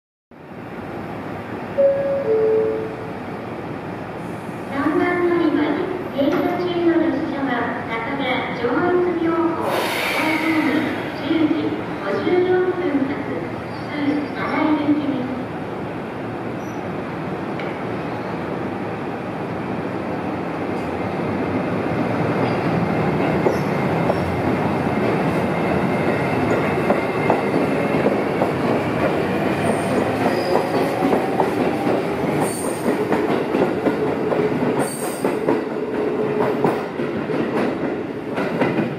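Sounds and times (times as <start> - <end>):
electric train passing: 0.5 - 4.7, 17.2 - 38.9.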